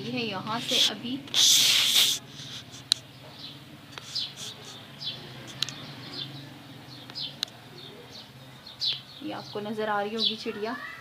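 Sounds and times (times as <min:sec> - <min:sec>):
sparrows chirping: 0:00.0 - 0:11.0
sharp clicks: 0:05.4 - 0:05.8.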